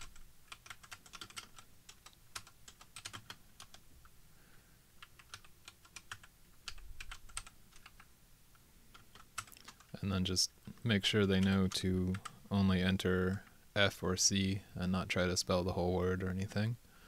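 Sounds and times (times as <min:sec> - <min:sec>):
keyboard typing: 0:00.0 - 0:03.8, 0:05.0 - 0:08.1, 0:08.9 - 0:10.0.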